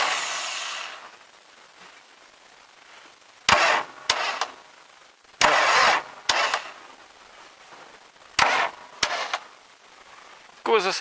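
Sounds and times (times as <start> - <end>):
tractor starter motor slipping: 5.4 - 6.7.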